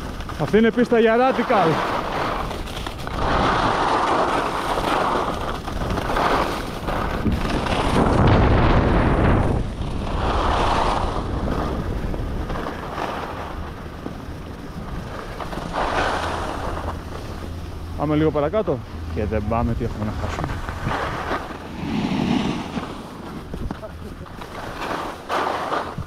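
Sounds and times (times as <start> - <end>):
wind buffeting the microphone: 0.0 - 24.8
skis scraping over snow: 0.0 - 26.0.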